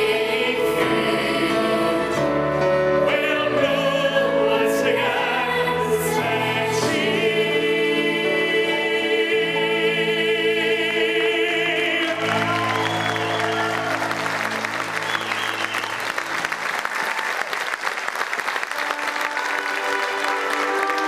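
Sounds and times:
children's choir singing: 0.0 - 12.6
male tenor singing: 3.0 - 7.6
audience applause: 11.9 - 21.0
steady musical notes: 17.9 - 21.0.

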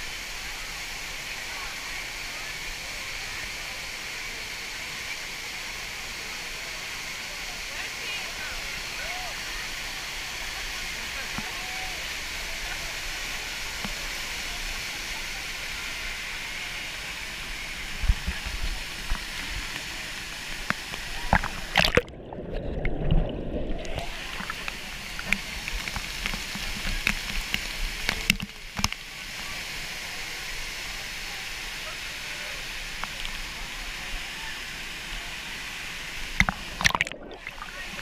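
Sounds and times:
waterfall rushing and splashing: 0.0 - 22.1, 23.4 - 38.0
muffled bubbly underwater sound: 18.0 - 28.9, 36.3 - 38.0.

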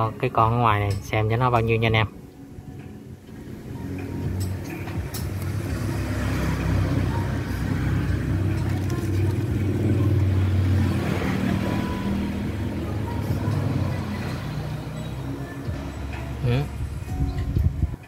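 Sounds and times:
vehicle engine running: 3.3 - 17.2.

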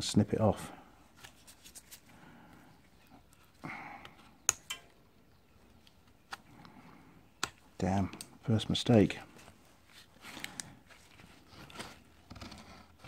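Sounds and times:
sharp metallic clicks: 4.4 - 5.0.

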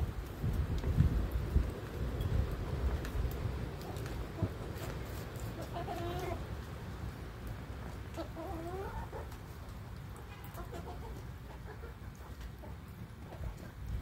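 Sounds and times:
chickens clucking: 3.8 - 6.5, 7.8 - 13.8.

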